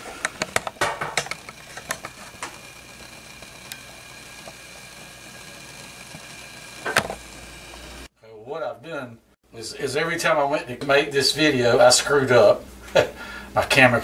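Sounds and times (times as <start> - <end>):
sharp clicks and knocks: 0.2 - 2.7, 6.1 - 7.2
low hum and hiss: 7.0 - 14.0.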